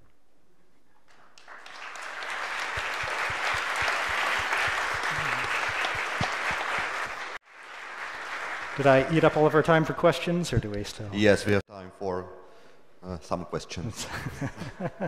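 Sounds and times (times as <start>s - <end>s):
audience applauding: 1.1s - 10.1s.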